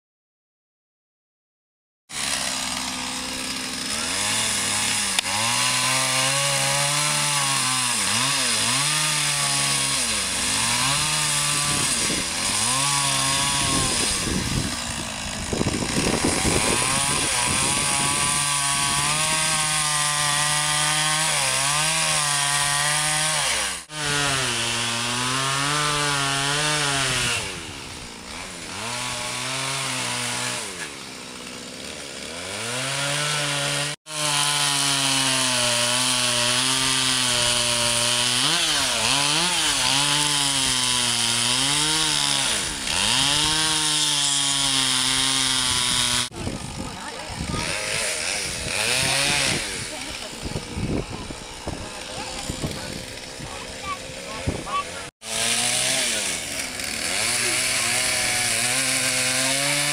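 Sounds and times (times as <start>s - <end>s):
chainsaw cutting wood: 2.1s - 59.9s.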